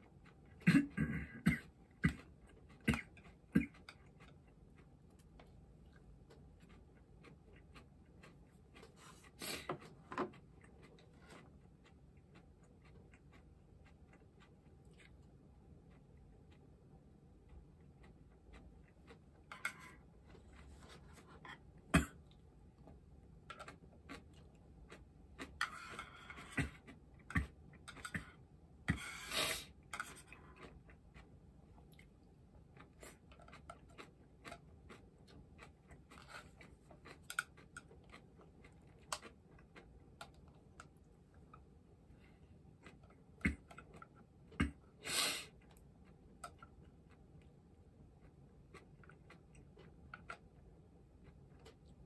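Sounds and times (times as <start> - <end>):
chewing: 0.0 - 0.7, 1.6 - 29.0, 29.6 - 52.0
chopsticks clicking on dishes: 19.5 - 20.0.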